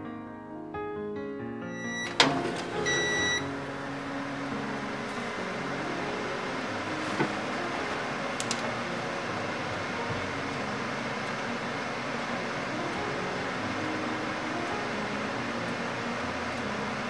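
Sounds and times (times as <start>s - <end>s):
electric oven hum and hiss: 1.7s - 17.0s.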